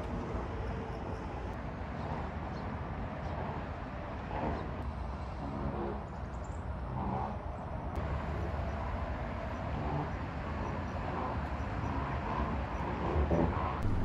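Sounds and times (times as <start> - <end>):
distant road traffic rumble: 6.8 - 14.0.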